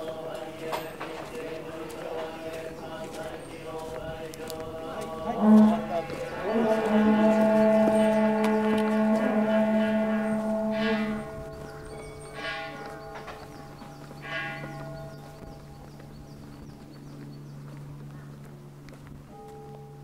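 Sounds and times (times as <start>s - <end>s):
monks chanting low notes: 0.0s - 18.6s.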